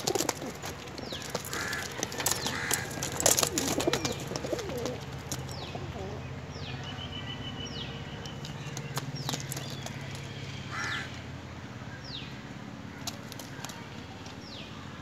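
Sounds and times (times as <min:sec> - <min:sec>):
crow cawing: 0:01.4 - 0:03.2, 0:10.6 - 0:11.2.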